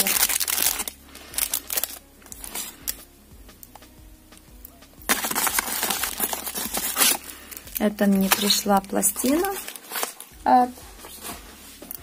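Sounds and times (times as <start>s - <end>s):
plastic bag crinkling: 0.0s - 2.9s, 5.1s - 10.4s.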